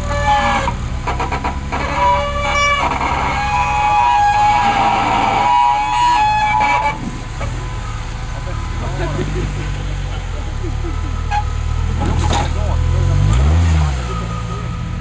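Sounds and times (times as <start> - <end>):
buggy engine rumbling at low revs: 0.0 - 15.0.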